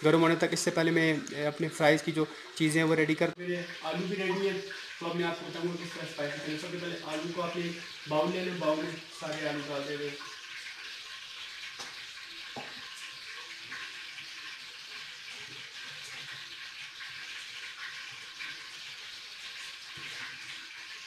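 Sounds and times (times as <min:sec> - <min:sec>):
oil sizzling: 0:00.0 - 0:21.0.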